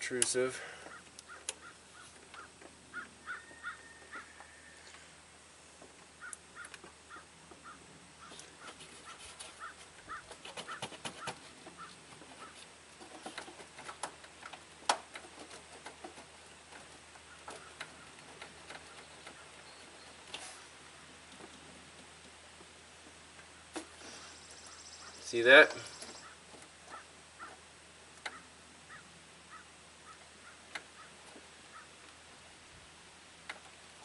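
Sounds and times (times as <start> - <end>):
short bird calls: 23.6 - 27.6.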